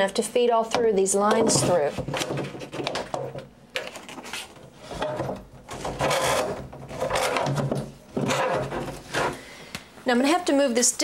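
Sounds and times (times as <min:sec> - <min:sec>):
plastic hose scraping against wood: 0:04.8 - 0:09.4.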